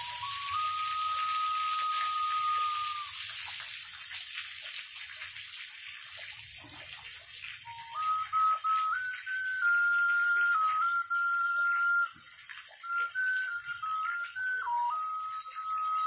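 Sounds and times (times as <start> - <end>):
stone whistle note: 0.0 - 3.2, 7.7 - 12.2, 12.8 - 16.0
small waterfall hissing: 0.0 - 16.0.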